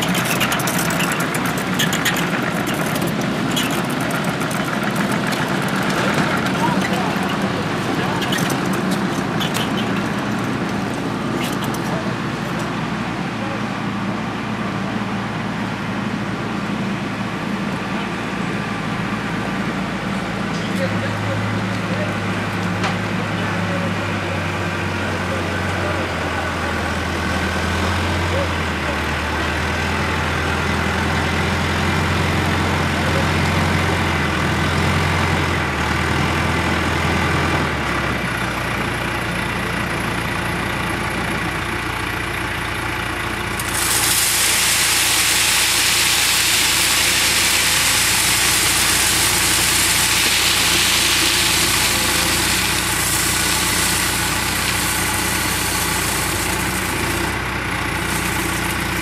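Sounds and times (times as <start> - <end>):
diesel engine running: 0.0 - 59.0
loud steady hiss: 43.5 - 59.0.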